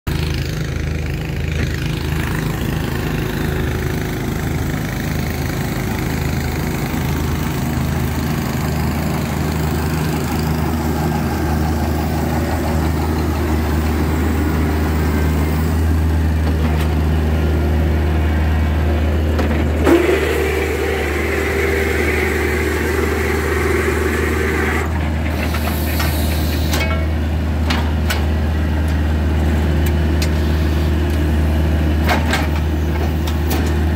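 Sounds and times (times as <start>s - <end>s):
drilling rig engine humming: 0.1s - 33.9s
high whine: 19.8s - 25.0s.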